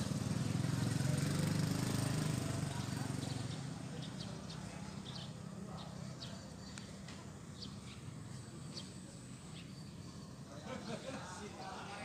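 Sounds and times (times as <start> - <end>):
low traffic rumble: 0.0 - 12.0
bird chirping: 2.8 - 11.0.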